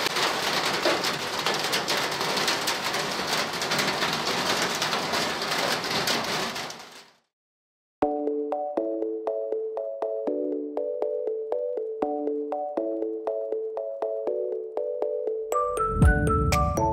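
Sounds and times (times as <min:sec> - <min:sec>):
steady rain falling: 0:00.0 - 0:07.2.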